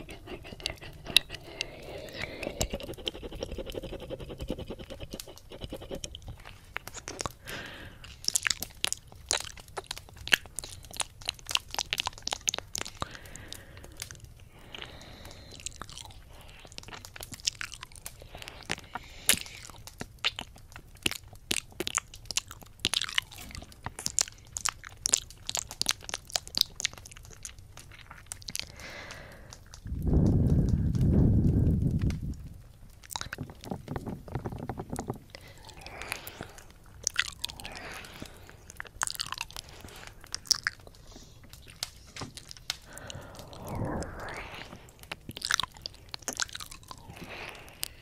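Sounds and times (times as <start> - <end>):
wet mouth clicks and crackles: 0.0 - 48.0.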